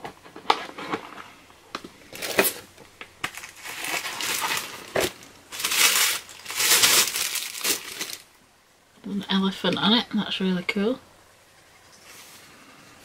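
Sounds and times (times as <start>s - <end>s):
plastic wrapping crinkling: 2.1s - 8.3s.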